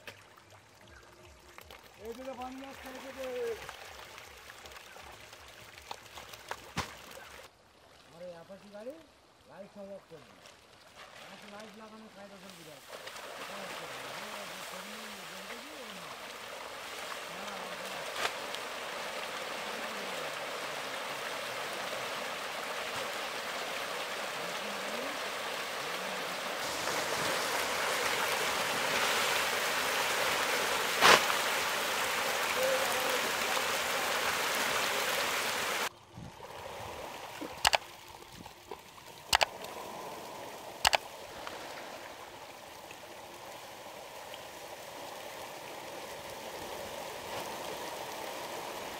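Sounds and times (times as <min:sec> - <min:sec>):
sharp clicks: 0:37.6 - 0:37.8.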